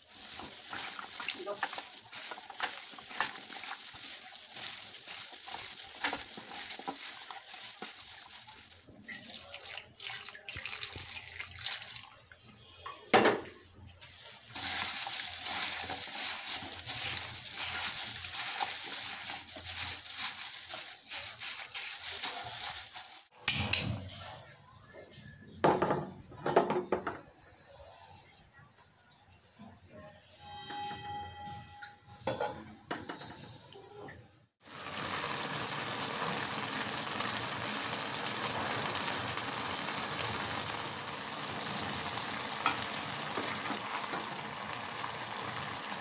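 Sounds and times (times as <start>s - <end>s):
food sizzling in a frying pan: 0.0s - 9.6s, 14.2s - 23.4s, 34.6s - 46.0s.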